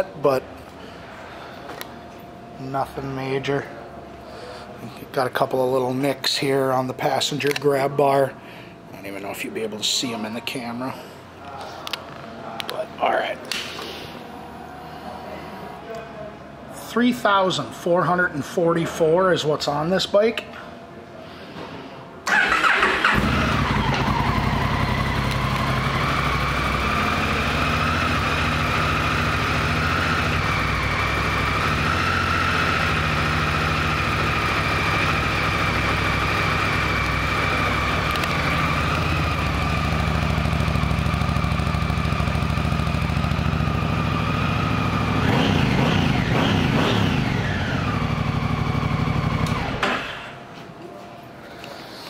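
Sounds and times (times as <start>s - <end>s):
engine revving: 22.3s - 39.6s, 43.4s - 49.8s
motorcycle engine idling: 22.3s - 49.8s
motorcycle engine starting: 22.3s - 50.4s.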